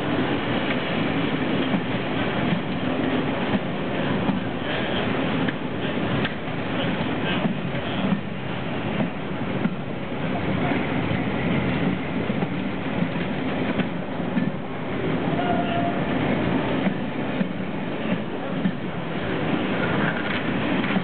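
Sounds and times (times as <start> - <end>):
train wheels rumbling on rails: 0.0 - 21.0
wheels clicking over rail joint: 19.8 - 21.0.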